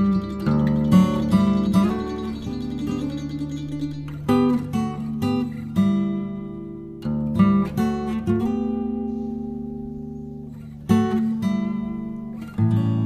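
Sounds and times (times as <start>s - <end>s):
strummed acoustic guitar: 0.0s - 13.0s.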